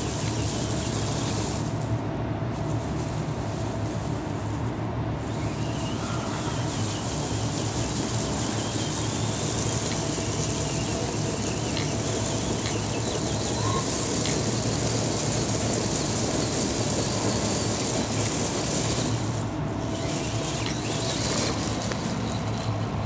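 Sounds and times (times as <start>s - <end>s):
small electric motor whine: 0.0s - 1.9s, 5.2s - 23.0s
rocks clicking under tyres: 0.0s - 2.0s, 5.3s - 23.0s
faint bird chirps: 5.3s - 14.4s.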